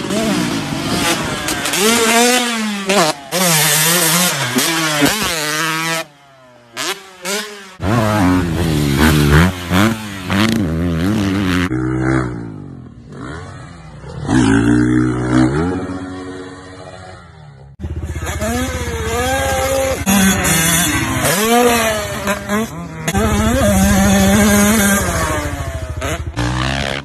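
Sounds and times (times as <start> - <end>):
dirt bike engines revving: 0.0 - 27.0.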